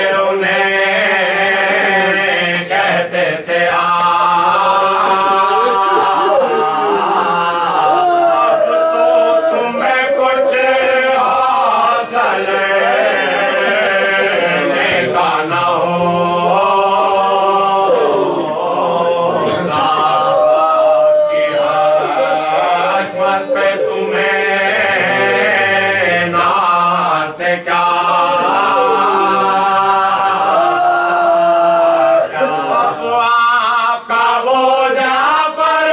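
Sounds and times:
men chanting unaccompanied: 0.0 - 35.9.

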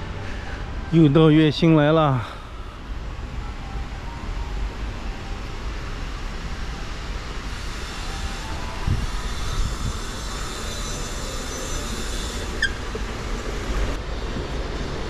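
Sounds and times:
escalator mechanical rumble: 0.0 - 15.0
brief squeak: 10.6 - 13.0.

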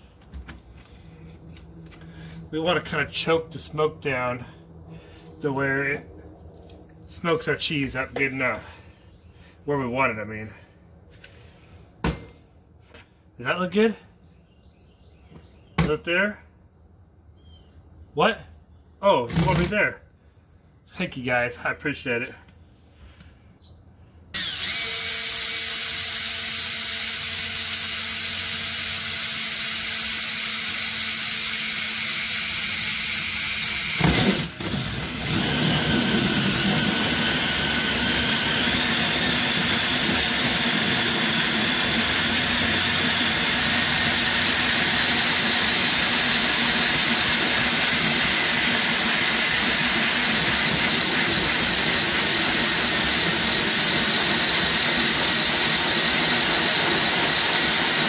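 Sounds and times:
power drill with hole saw cutting metal: 24.4 - 58.0.

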